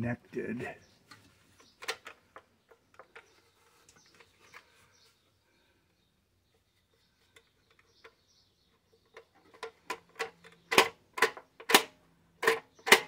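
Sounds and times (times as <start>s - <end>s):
sheet metal clicks and knocks: 9.1s - 13.0s.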